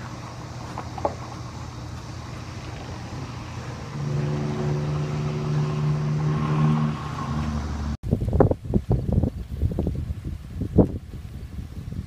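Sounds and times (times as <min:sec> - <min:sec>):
vehicle engine humming: 0:00.0 - 0:08.0.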